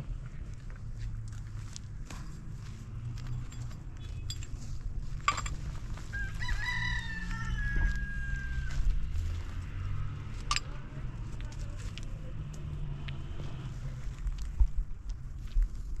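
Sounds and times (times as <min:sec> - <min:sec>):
rooster crowing: 0:06.1 - 0:08.9.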